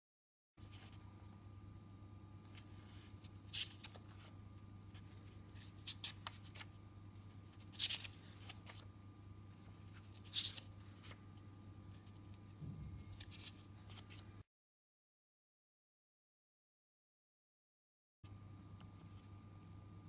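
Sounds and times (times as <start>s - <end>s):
book pages turning: 0.6s - 1.0s, 2.4s - 8.9s, 9.5s - 11.2s, 11.9s - 14.3s
low steady hum: 0.6s - 14.4s, 18.3s - 20.0s.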